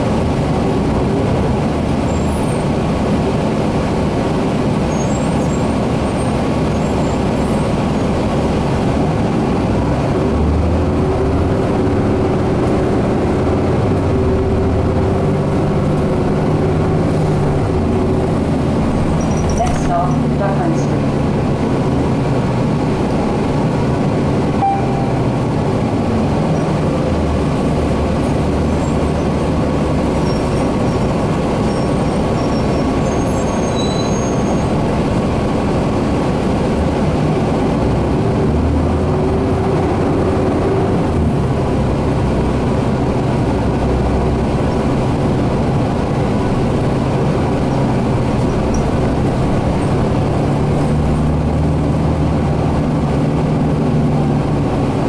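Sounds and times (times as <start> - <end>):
bus engine drone: 0.0 - 55.0
road noise: 0.0 - 55.0.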